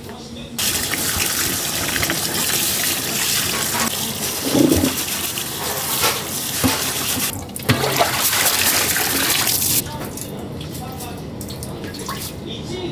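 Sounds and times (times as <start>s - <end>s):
hands scrubbing rice: 0.6s - 7.3s
tap water splashing into sink: 0.6s - 9.8s.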